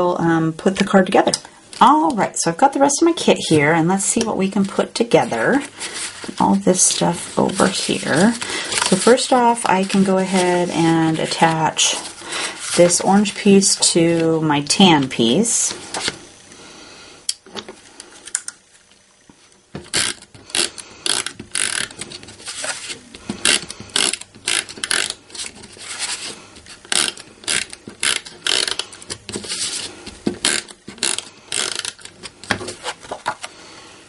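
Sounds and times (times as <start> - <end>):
tape runner clicking and ratcheting: 23.4 - 25.6, 26.8 - 29.4, 30.4 - 32.2.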